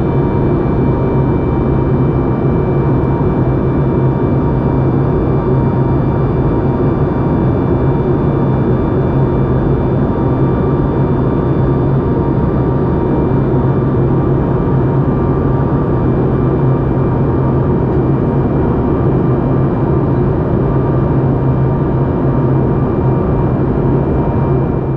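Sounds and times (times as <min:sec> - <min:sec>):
airplane cabin engine noise: 0:00.0 - 0:24.9.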